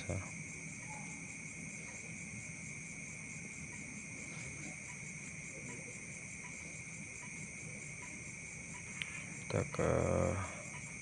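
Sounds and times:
faint low hum: 0:00.0 - 0:11.0
insects trilling: 0:00.0 - 0:11.0.

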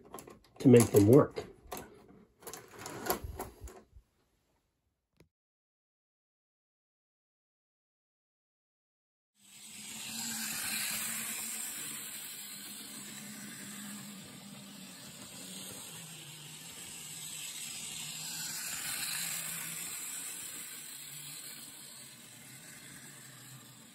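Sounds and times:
hiss: 0:09.4 - 0:23.9
toy train motor hum and rumble: 0:09.4 - 0:23.9.

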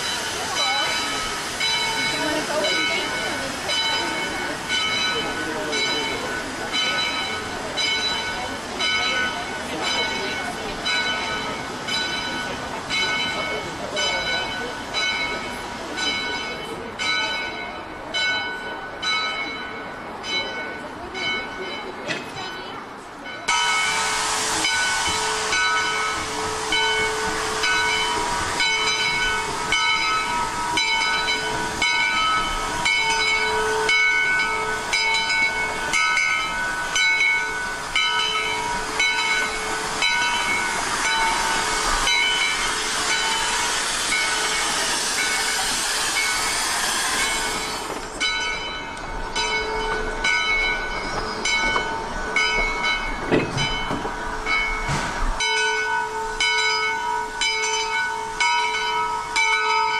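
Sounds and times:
steam hissing: 0:00.0 - 0:16.5, 0:23.4 - 0:59.9.

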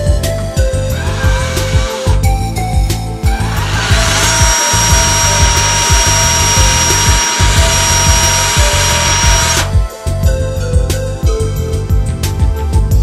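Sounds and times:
background music: 0:00.0 - 0:13.0
power drill whining: 0:00.8 - 0:09.8.

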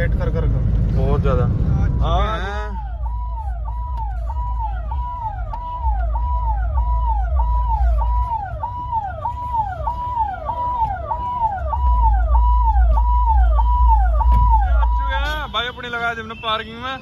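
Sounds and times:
low rumble: 0:00.0 - 0:09.4
electronic siren: 0:01.9 - 0:15.4.

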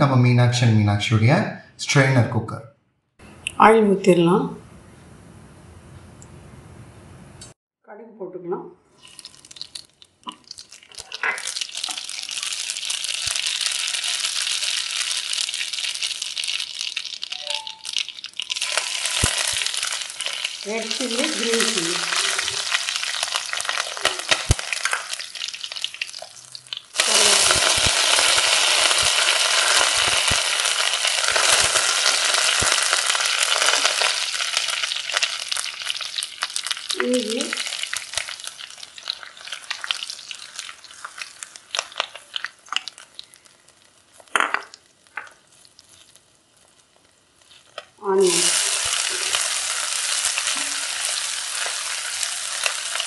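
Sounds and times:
spatula stirring in pan: 0:09.0 - 0:36.9
seeds sizzling in hot oil: 0:09.0 - 0:53.0.

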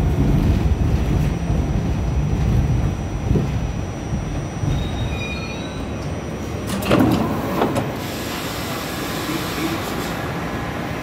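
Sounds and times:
subway train wheels rumbling: 0:00.0 - 0:11.0
high wheel squeals: 0:04.7 - 0:06.0.

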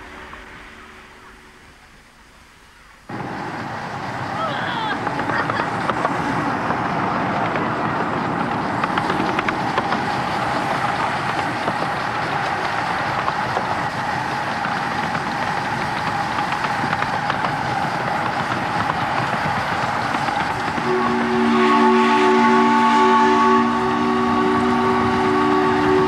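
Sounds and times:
steam locomotive running: 0:00.0 - 0:26.0
wheels clicking on rails: 0:03.0 - 0:22.6.

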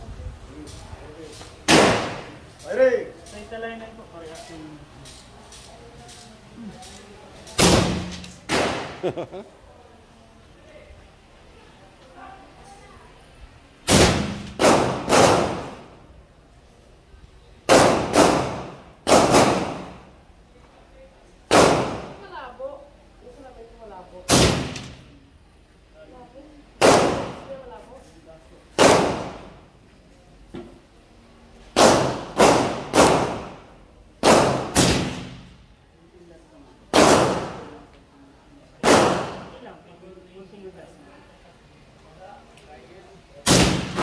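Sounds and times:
suppressed rifle shots: 0:01.7 - 0:02.3, 0:07.6 - 0:09.0, 0:17.7 - 0:19.9, 0:34.2 - 0:35.4, 0:38.8 - 0:39.5
rifle shots: 0:01.7 - 0:02.4, 0:07.6 - 0:09.0, 0:13.9 - 0:15.9, 0:17.7 - 0:20.0, 0:21.5 - 0:22.2, 0:24.3 - 0:25.0, 0:26.8 - 0:27.5, 0:28.8 - 0:29.5, 0:31.8 - 0:33.6, 0:34.2 - 0:35.6, 0:36.9 - 0:37.7, 0:38.8 - 0:39.5, 0:43.4 - 0:44.0.

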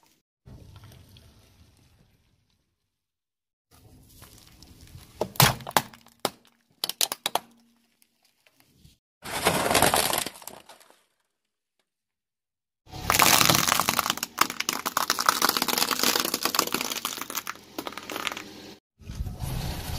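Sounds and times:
crunching shattering burst: 0:12.9 - 0:18.4
plate cracking under tyre: 0:12.9 - 0:18.5.

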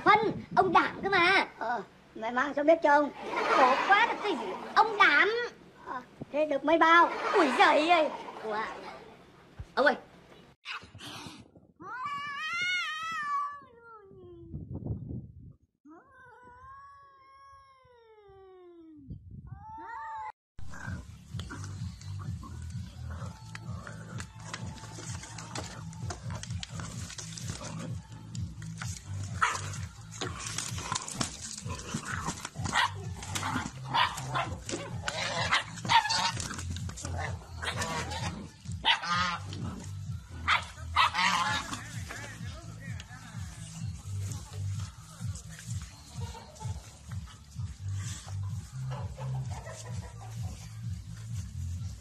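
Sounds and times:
animals scuffling: 0:03.1 - 0:05.4, 0:20.8 - 0:52.0
puppies barking and yipping: 0:21.3 - 0:42.5, 0:43.4 - 0:51.7.

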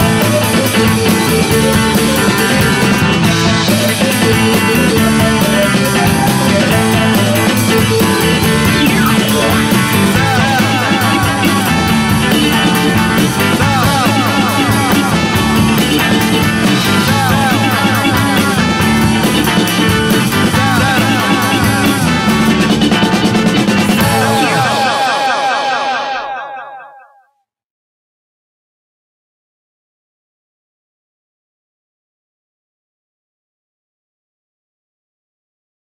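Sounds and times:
instrumental psychedelic rock: 0:00.0 - 0:26.9.

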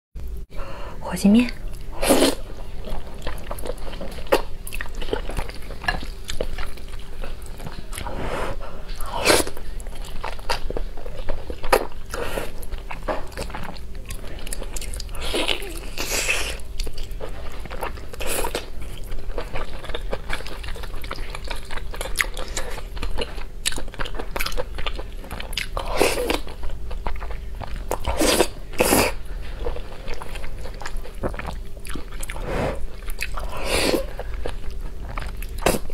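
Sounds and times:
faint steady hum: 0:00.2 - 0:35.9
wet chewing: 0:01.5 - 0:08.2, 0:08.9 - 0:35.9
slurping noodles: 0:32.3 - 0:32.9.

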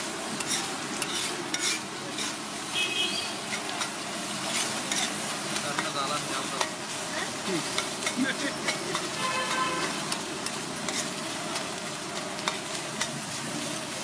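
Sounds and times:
egg sizzling in a pan: 0:00.0 - 0:14.0
metal spatula scraping pan: 0:00.4 - 0:02.4, 0:03.3 - 0:05.2, 0:07.6 - 0:11.2.

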